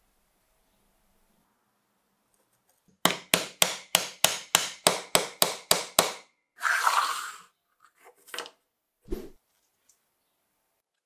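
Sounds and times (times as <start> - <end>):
brief scraping: 9.1 - 9.4.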